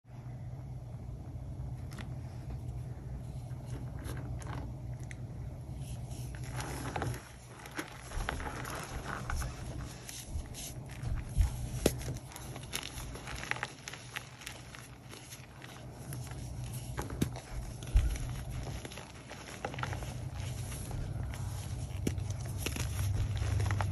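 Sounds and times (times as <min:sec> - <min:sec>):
steady low hum: 0:00.1 - 0:23.9
chalk snapping: 0:10.0 - 0:23.9.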